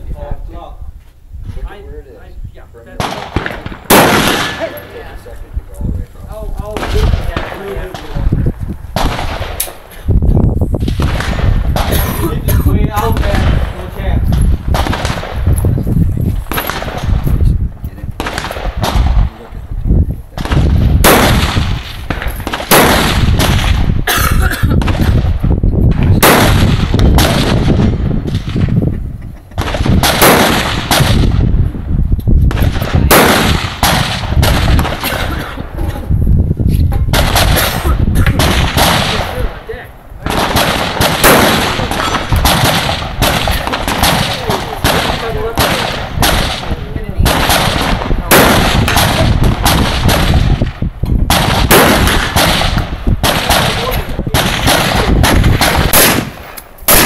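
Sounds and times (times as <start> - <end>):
rifle shots echoing: 2.9 - 5.4, 6.3 - 10.0, 10.8 - 15.6, 16.4 - 17.3, 18.2 - 19.5, 20.4 - 24.1, 26.0 - 28.8, 29.5 - 31.6, 32.5 - 35.8, 37.1 - 57.0.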